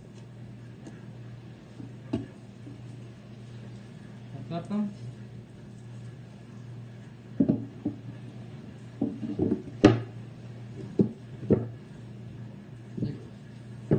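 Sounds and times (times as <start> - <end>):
wood-on-wood knocks: 7.4 - 8.0, 9.0 - 10.1, 11.0 - 11.7.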